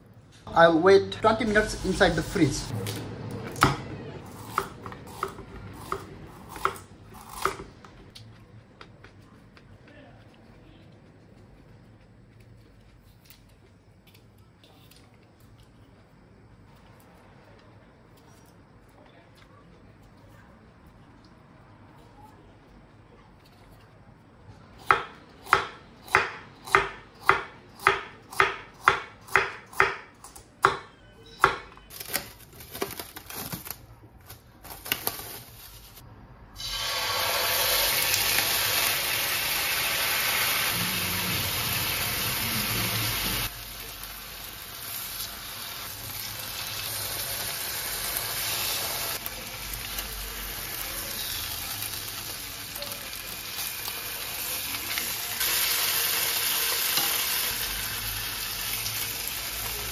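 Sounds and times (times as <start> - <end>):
knife chopping on wooden board: 24.8 - 31.7
fish sizzling in frying pan: 36.6 - 59.9.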